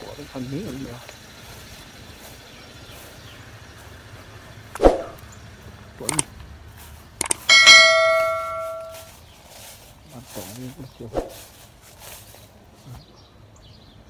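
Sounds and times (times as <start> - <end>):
double mouse click: 6.1 - 6.3, 7.2 - 7.5
notification bell ding: 7.4 - 9.1.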